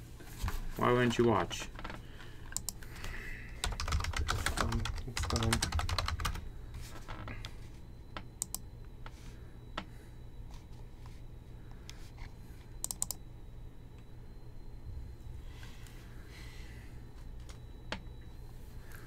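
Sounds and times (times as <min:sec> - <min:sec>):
faint high whine: 0:00.0 - 0:19.0
steady low hum: 0:00.0 - 0:19.0
keyboard keys clicking: 0:03.6 - 0:06.4.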